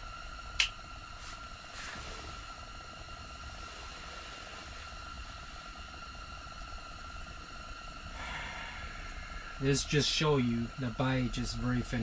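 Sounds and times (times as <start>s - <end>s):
faint high whine: 0.0s - 12.0s
gas heater hissing: 0.0s - 12.0s.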